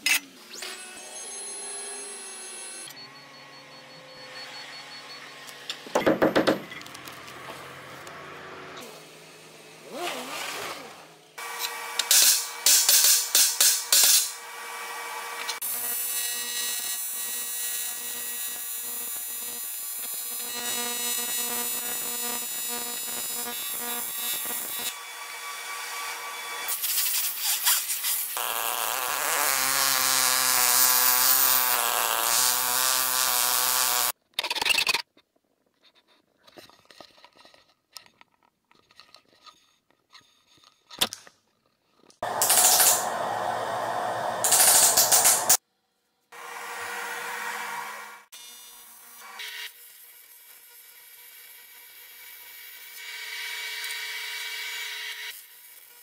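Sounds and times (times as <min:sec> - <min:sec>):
sharp knocks on metal: 0:05.9 - 0:06.7
rough tool run with low hum: 0:07.1 - 0:12.6, 0:42.2 - 0:45.6.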